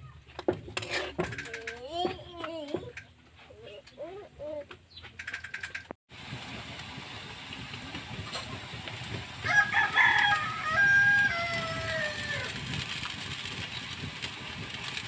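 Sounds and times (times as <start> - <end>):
rooster crowing: 9.4 - 12.6.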